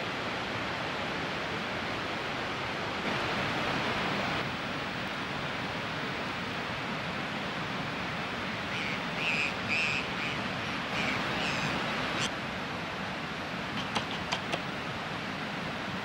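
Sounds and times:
high bird calls: 8.7 - 12.3.

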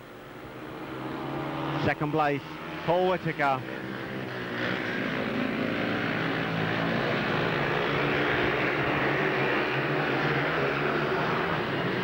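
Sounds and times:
motorcycle engines racing: 0.3 - 12.0.

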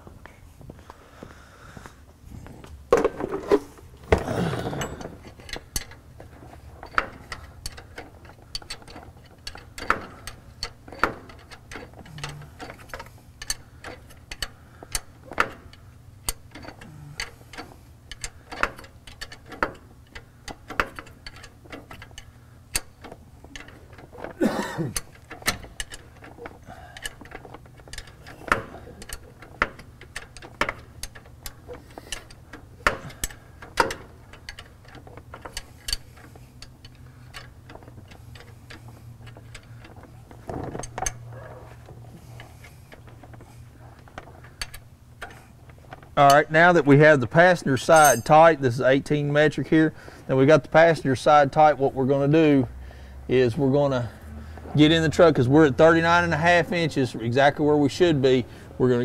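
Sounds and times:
metal clatter: 2.9 - 46.4, 47.8 - 48.6.

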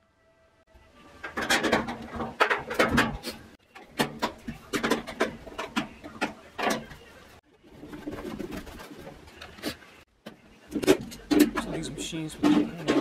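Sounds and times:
metal cover closing: 1.2 - 6.9.

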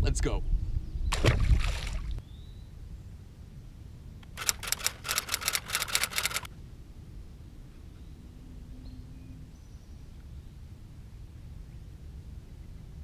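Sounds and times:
fishing reel clicking: 4.2 - 6.5.

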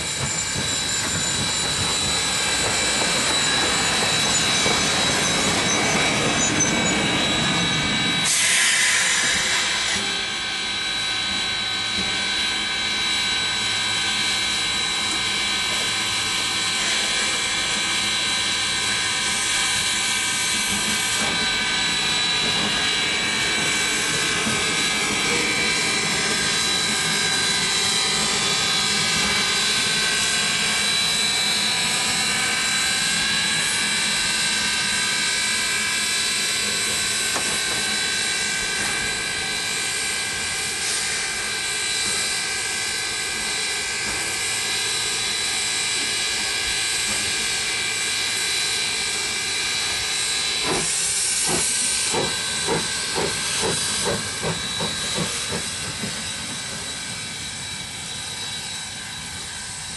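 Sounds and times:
steam locomotive chuffing: 0.0 - 59.9
steam locomotive hissing: 0.0 - 59.9.

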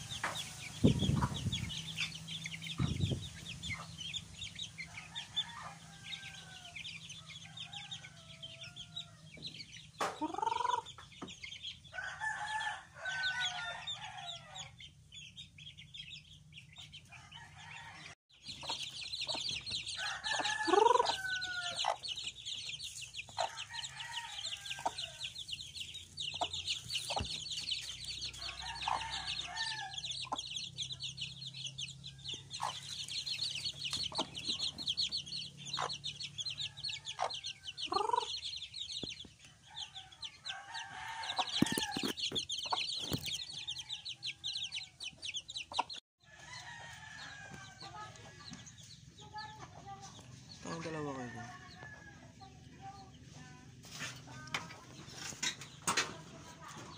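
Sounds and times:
chicks peeping: 0.0 - 56.9
hens clucking: 8.8 - 11.4, 18.5 - 30.6, 32.3 - 43.8.

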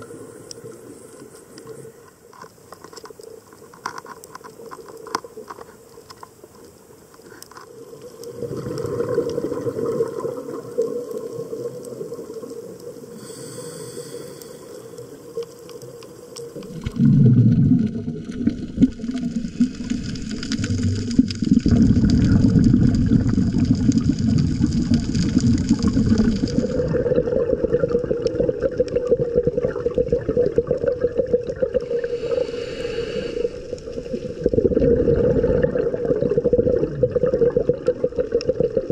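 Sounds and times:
underwater bubbles rushing and gurgling: 7.7 - 13.6, 14.8 - 38.9.

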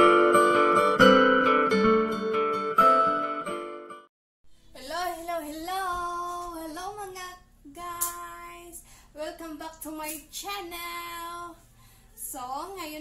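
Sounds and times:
woman singing: 4.8 - 11.6.

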